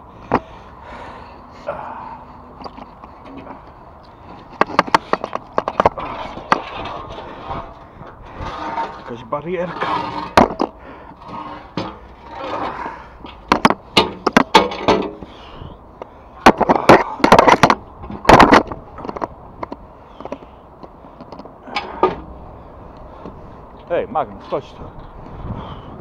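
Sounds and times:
steel barrier clanking on concrete: 4.6s - 15.5s.

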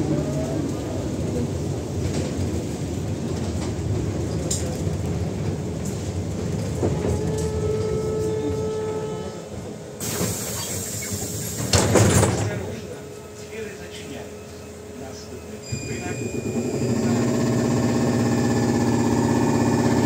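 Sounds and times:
trolleybus interior rumble: 0.0s - 20.0s
sudden hiss: 10.0s - 11.9s.

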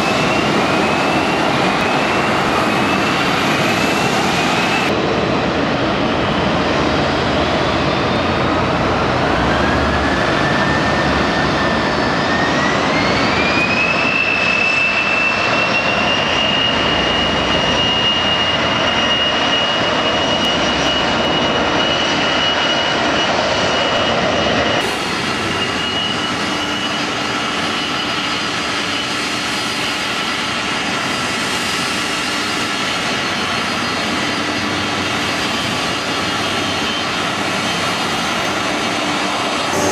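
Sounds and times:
jet engines spooling up: 0.0s - 39.9s
taxiing jet engine whine: 0.0s - 39.9s.

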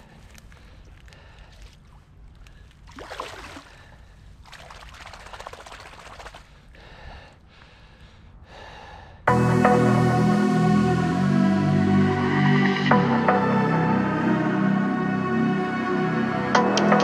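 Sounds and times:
fish splashing in shallow water: 2.7s - 6.6s
loud music: 9.3s - 17.0s.

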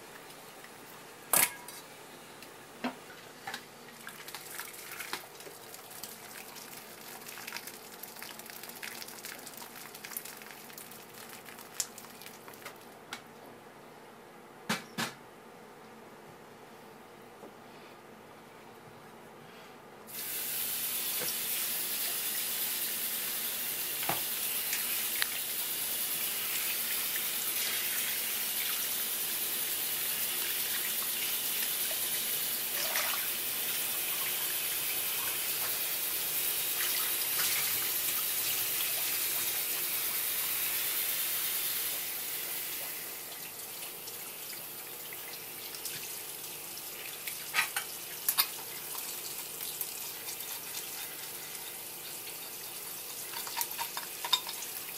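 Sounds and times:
water running from hose into bowl: 4.0s - 12.8s, 20.2s - 54.9s.

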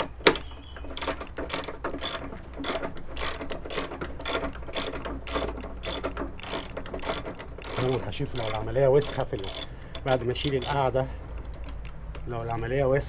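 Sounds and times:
ratchet wrench clicking: 1.0s - 11.1s.

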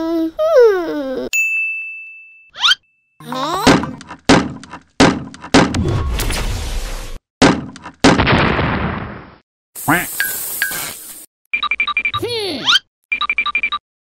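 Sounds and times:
heavy cartoon thuds: 3.6s - 6.0s, 7.4s - 8.8s.

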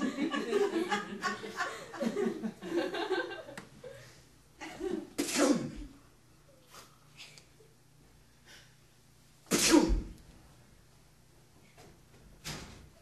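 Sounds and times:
sharp vocal burst: 9.5s - 10.1s.

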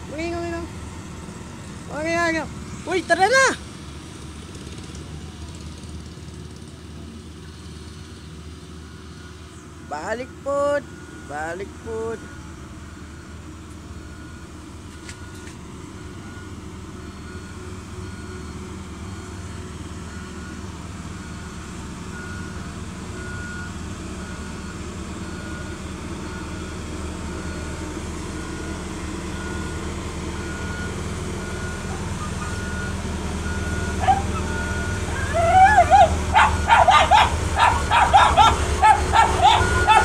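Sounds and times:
diesel engine running: 0.0s - 40.0s
back-up alarm beeping: 30.4s - 40.0s.

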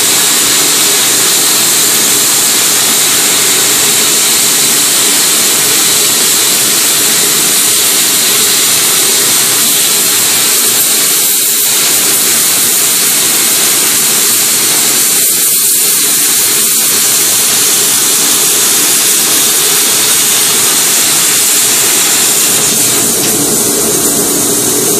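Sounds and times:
plasma cutter hissing: 0.0s - 24.9s.

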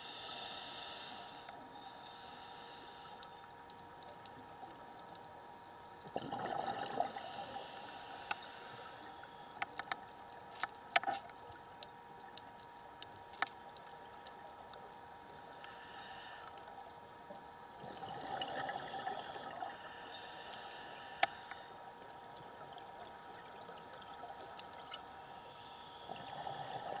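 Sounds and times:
faint steady hum: 0.0s - 27.0s
rush of bubbles underwater: 6.0s - 7.4s.

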